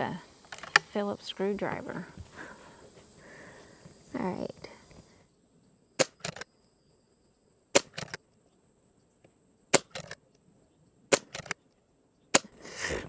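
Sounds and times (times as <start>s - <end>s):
air rifle shots: 6.0s - 6.4s, 7.7s - 8.2s, 9.7s - 10.2s, 11.1s - 11.6s, 12.3s - 12.6s.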